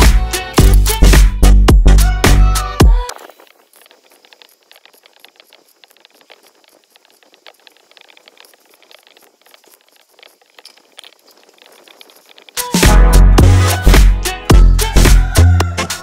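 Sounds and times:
welding arc crackling: 2.0s - 10.6s.

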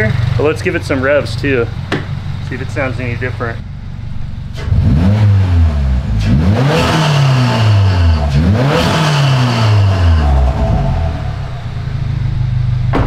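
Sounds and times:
car engine revving: 0.0s - 13.0s
turbo and intake whoosh: 0.1s - 12.9s.

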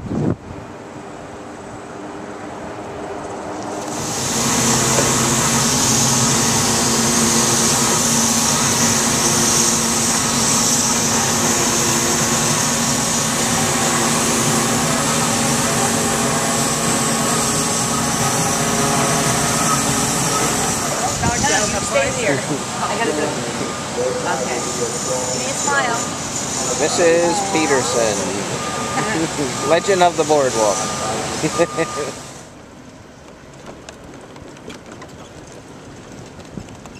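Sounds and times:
truck engine and machinery running: 0.0s - 36.9s
loud steady hiss: 3.6s - 32.6s.

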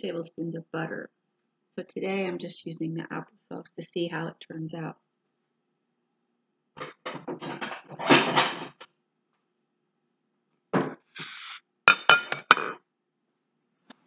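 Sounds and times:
kitchenware clattering and scraping: 6.8s - 8.8s, 11.9s - 12.8s
ceramic plate clinking on countertop: 11.9s - 12.8s.

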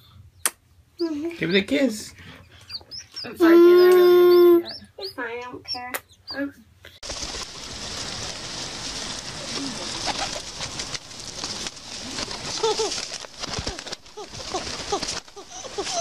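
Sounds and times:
pigeon wings flapping: 7.0s - 16.0s
rustling hiss: 7.0s - 16.0s.

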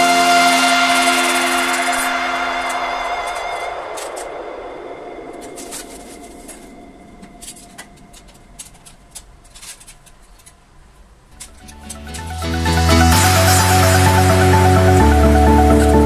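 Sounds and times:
background noise: 0.0s - 16.0s
plastic clicks and rattles: 7.3s - 10.6s.

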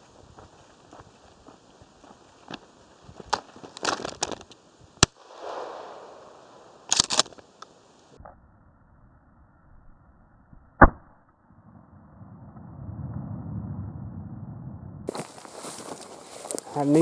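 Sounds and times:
footsteps in dry grass: 0.0s - 4.6s, 15.1s - 17.0s
shotgun shot: 5.0s - 7.3s.

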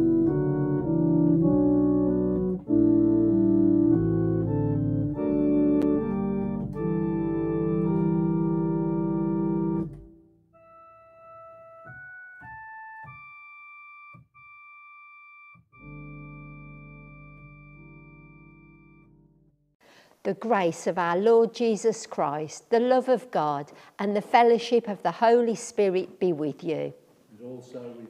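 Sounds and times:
high keyboard melody: 0.0s - 19.8s
organ-like keyboard chords: 0.0s - 19.8s.

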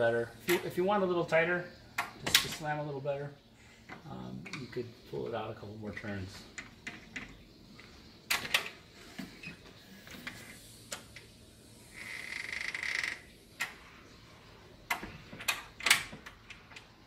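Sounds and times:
pneumatic door closer hiss: 8.4s - 14.0s.

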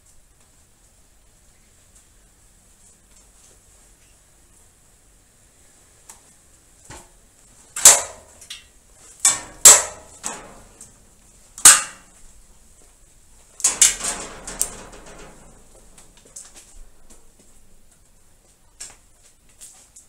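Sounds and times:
net pole knocking plastic roof: 7.8s - 8.4s, 9.2s - 11.0s, 11.6s - 12.2s.

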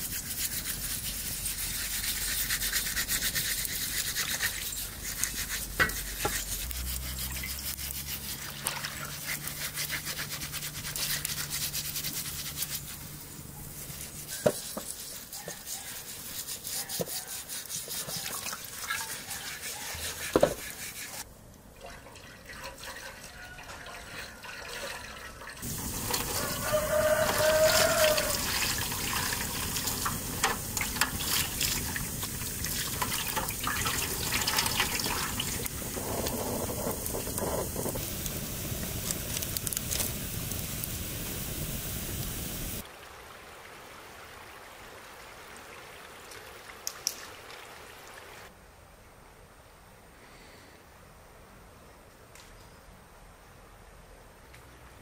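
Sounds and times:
rasping scrubbing on hide: 0.0s - 21.2s, 25.6s - 35.6s.

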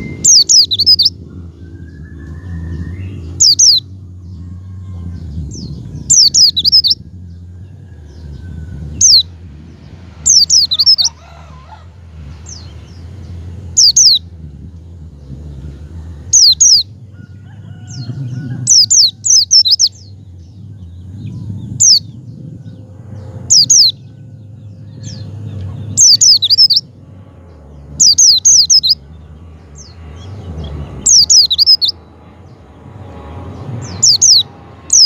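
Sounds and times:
bird calling: 0.0s - 4.9s, 6.0s - 7.0s, 10.2s - 14.4s, 15.2s - 22.2s, 22.8s - 27.0s, 27.9s - 32.1s, 33.8s - 35.0s
steady low rumble: 0.0s - 35.0s.

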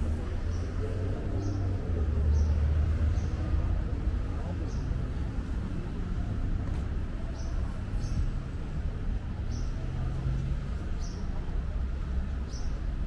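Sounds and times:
passers-by: 0.0s - 13.0s
traffic rumble: 0.0s - 13.0s.

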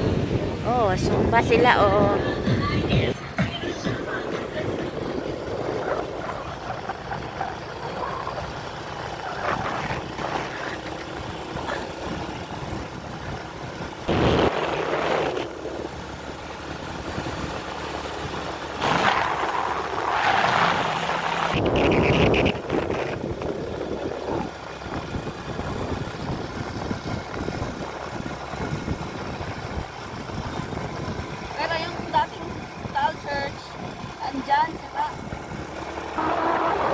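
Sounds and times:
rushes of noise: 0.0s - 16.4s, 35.3s - 36.9s
vehicle engine and road rumble: 0.0s - 36.9s.

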